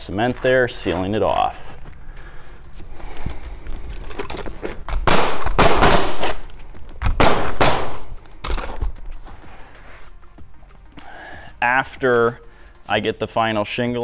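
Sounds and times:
nail gun firing rapid bursts: 0:05.0 - 0:06.4, 0:07.0 - 0:08.1.

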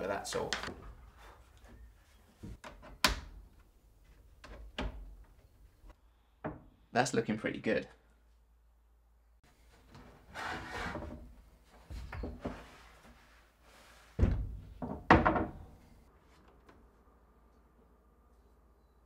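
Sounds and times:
hollow wooden thunks: 0:06.4 - 0:06.8, 0:14.2 - 0:15.9
wood scraping and rubbing: 0:10.2 - 0:11.3.

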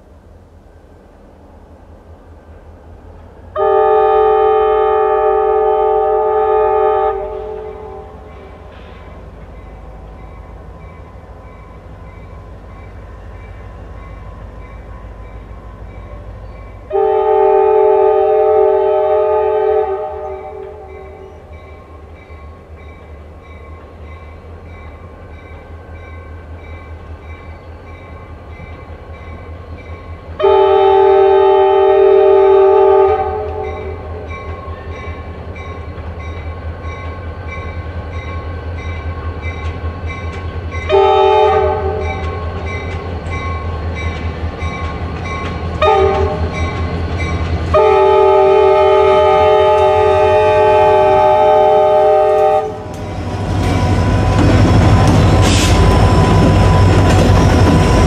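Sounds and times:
train rumble: 0:00.0 - 0:58.0
locomotive horn blasts: 0:03.6 - 0:08.7, 0:16.8 - 0:21.4, 0:30.4 - 0:34.4, 0:40.8 - 0:42.7, 0:45.8 - 0:46.8, 0:47.7 - 0:53.0
railroad crossing bell ringing: 0:09.4 - 0:17.0, 0:20.6 - 0:30.3, 0:33.6 - 0:41.3, 0:41.9 - 0:49.8, 0:52.1 - 0:58.0.

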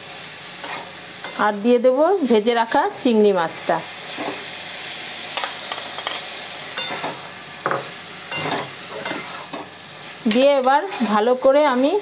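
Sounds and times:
food sizzling in a wok: 0:00.0 - 0:12.0
spatula scraping and tapping pan: 0:06.8 - 0:09.7, 0:10.3 - 0:12.0.

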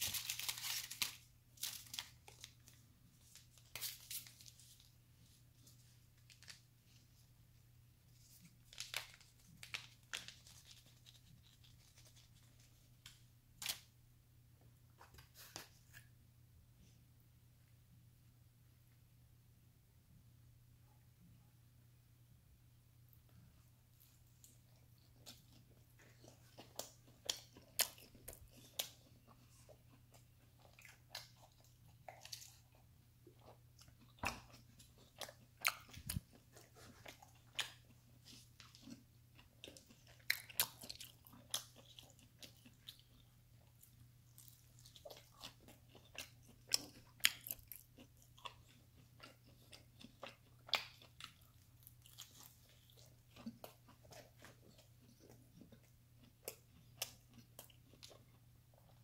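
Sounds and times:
person chewing pizza: 0:23.2 - 0:59.0.

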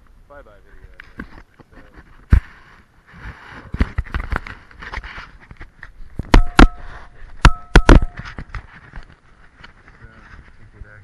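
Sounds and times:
sharp loud knocks: 0:06.3 - 0:08.4.

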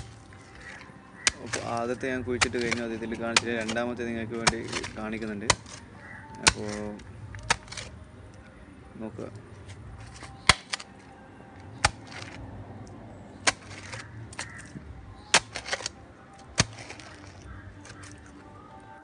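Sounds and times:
metal blade striking stony soil: 0:00.0 - 0:08.0, 0:10.0 - 0:11.0, 0:11.7 - 0:12.4, 0:13.4 - 0:18.3
soil and gravel scraping: 0:00.0 - 0:08.6, 0:09.2 - 0:12.6, 0:13.3 - 0:19.0.

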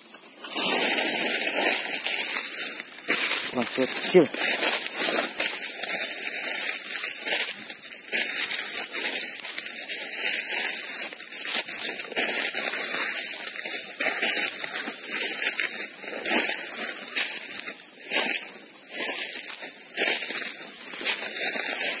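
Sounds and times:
brushing through undergrowth: 0:00.0 - 0:22.0
footsteps crunching dry leaves: 0:00.0 - 0:22.0.

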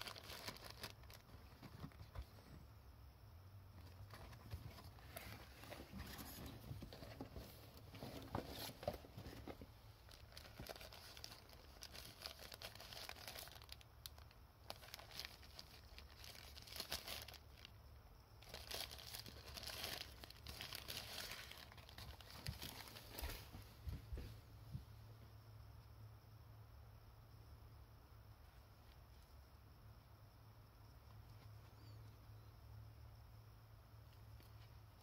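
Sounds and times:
paper wrapper rustling: 0:00.0 - 0:02.4, 0:03.9 - 0:17.7, 0:18.4 - 0:23.6.

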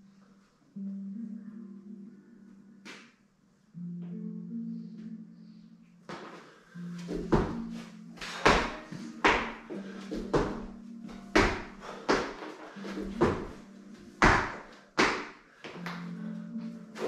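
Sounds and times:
thuds on rubber gym mats: 0:08.2 - 0:10.7, 0:11.3 - 0:12.4, 0:14.2 - 0:15.4
hands slapping mats: 0:14.2 - 0:15.4.

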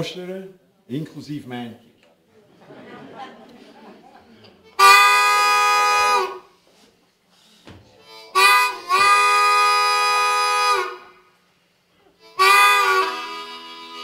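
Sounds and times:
harmonica train whistle chords: 0:04.8 - 0:06.6, 0:08.0 - 0:11.4, 0:12.2 - 0:14.0.

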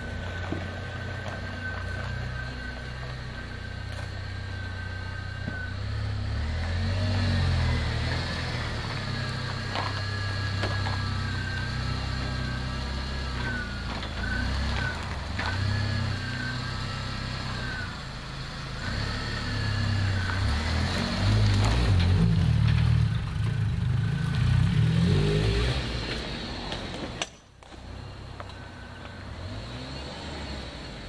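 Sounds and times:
thin wavering whine: 0:00.0 - 0:06.4
car engine running low speed: 0:00.0 - 0:31.0.

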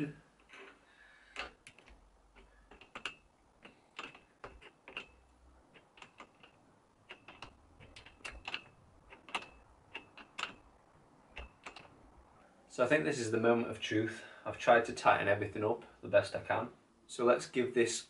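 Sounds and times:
metallic clicks and taps: 0:00.4 - 0:10.7, 0:11.3 - 0:12.0.

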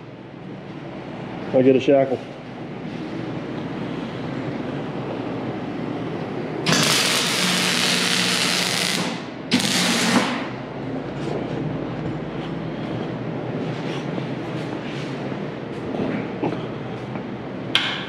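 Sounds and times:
welding arc crackling and hissing: 0:06.7 - 0:10.5.

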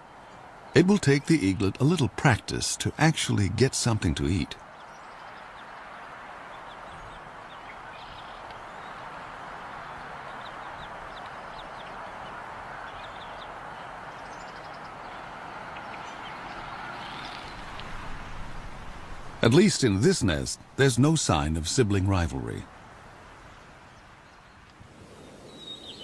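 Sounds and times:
steady hiss: 0:00.8 - 0:04.6, 0:16.6 - 0:26.0.

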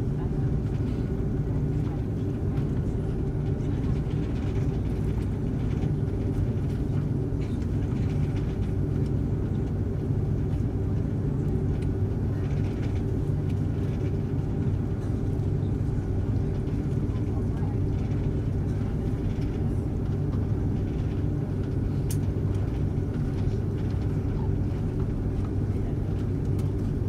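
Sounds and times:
jet engines humming: 0:00.0 - 0:27.0.

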